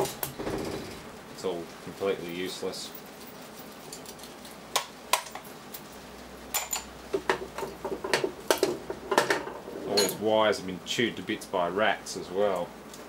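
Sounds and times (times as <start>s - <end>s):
metal parts clinking on workbench: 6.5s - 6.9s, 7.6s - 10.2s.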